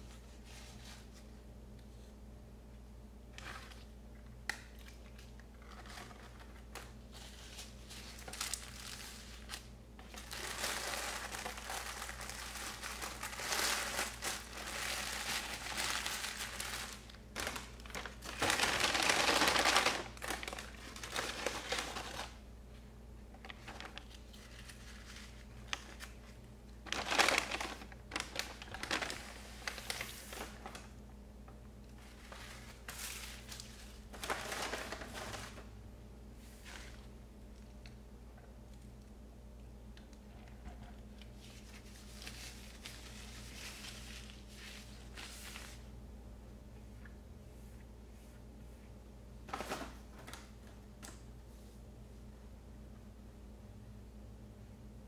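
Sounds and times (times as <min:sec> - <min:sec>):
paper wrappers crumpling: 0:04.7 - 0:22.4, 0:23.4 - 0:31.0, 0:32.0 - 0:35.7, 0:41.2 - 0:45.8.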